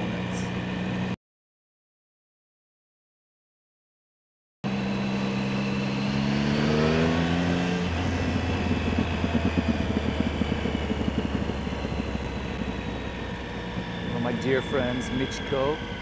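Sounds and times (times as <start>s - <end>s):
motorcycle engine revving: 4.7s - 16.0s.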